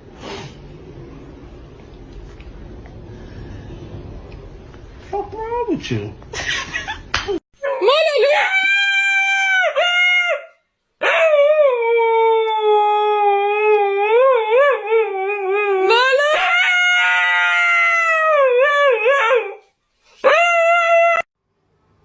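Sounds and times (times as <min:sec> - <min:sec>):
dog howling: 0:20.2 - 0:21.3.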